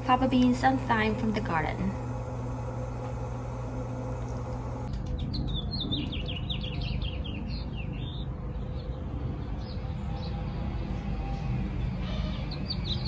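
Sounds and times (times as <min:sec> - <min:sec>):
low outdoor rumble: 0:00.0 - 0:13.0
steady hum: 0:00.0 - 0:13.0.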